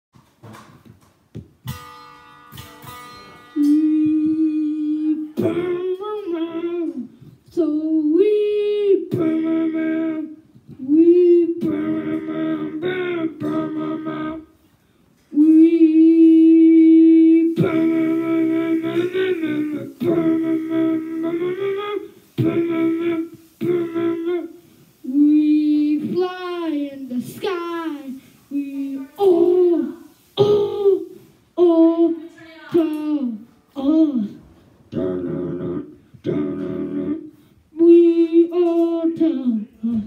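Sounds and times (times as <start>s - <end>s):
plucked string notes: 1.6s - 6.9s
boy humming and singing: 3.5s - 14.7s, 15.3s - 40.0s.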